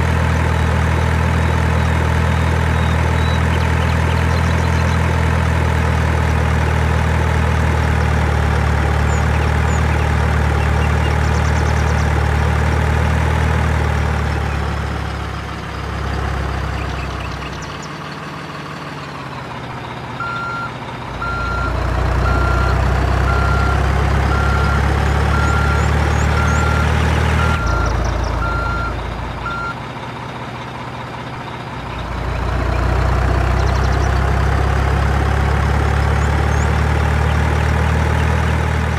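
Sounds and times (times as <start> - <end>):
truck engine running: 0.0 - 38.9
reversing alarm beeping: 20.2 - 29.8.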